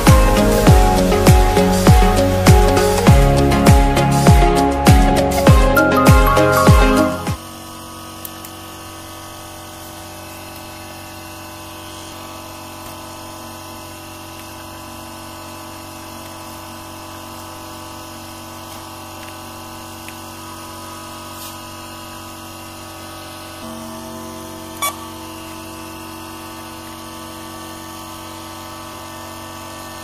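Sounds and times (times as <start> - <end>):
amplifier electrical hum: 8.6 - 29.8.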